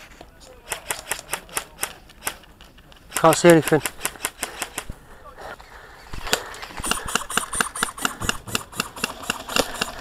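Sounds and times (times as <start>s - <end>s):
rapid airsoft shots clicking: 0.6s - 4.9s, 6.3s - 10.0s
airsoft gun sharp crack: 6.8s - 10.0s.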